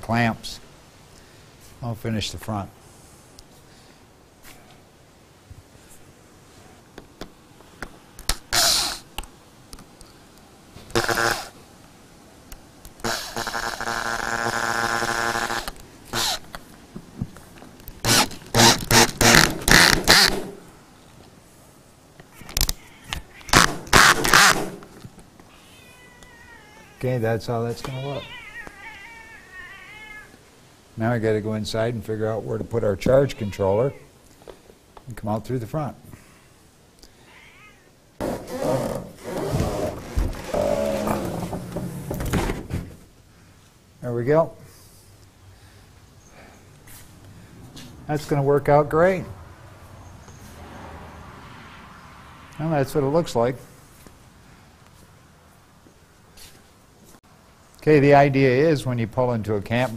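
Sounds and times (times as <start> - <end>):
cordless drill driving screws: 13.0 - 16.4, 18.0 - 20.4.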